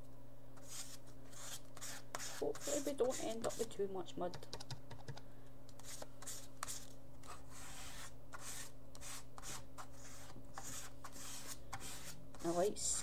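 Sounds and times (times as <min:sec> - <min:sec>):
plastic card scraping paint: 0:05.8 - 0:13.0.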